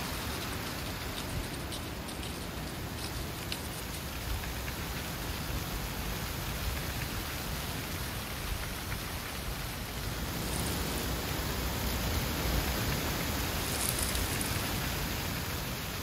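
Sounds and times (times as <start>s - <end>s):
light ticks: 0.0s - 10.8s
dry leaves rustling over gravel: 0.0s - 15.8s
low rumble of wind: 0.0s - 16.0s.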